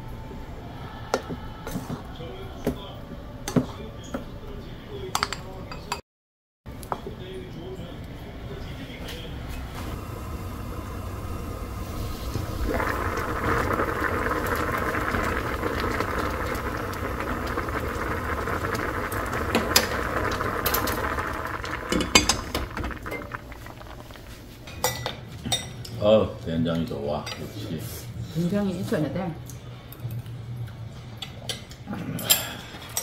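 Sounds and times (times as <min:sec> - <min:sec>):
stew bubbling in a pot: 0:09.9 - 0:25.1.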